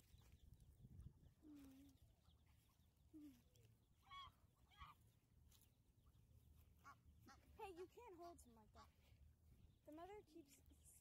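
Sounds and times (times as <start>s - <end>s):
goose honking: 6.8s - 9.0s.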